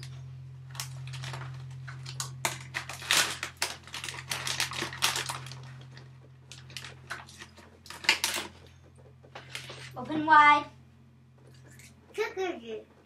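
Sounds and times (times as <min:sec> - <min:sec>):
steady low hum: 0:00.0 - 0:13.0
plastic snack packet crinkling: 0:00.7 - 0:08.5.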